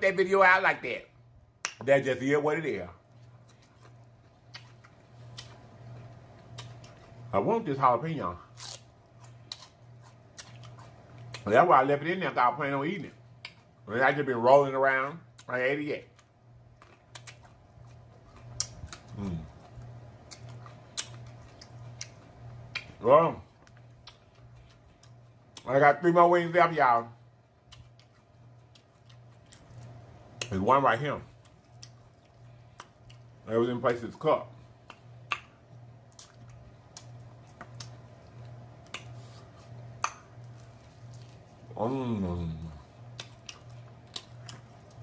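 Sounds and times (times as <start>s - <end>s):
low steady hum: 0.0s - 45.0s
person chewing food: 3.0s - 7.3s, 8.4s - 11.5s, 13.3s - 13.8s, 16.1s - 25.7s, 27.3s - 30.6s, 31.3s - 33.4s, 34.5s - 45.0s
sharp crunches and clicks: 8.4s - 11.6s, 15.4s - 23.0s
person humming: 41.8s - 42.8s.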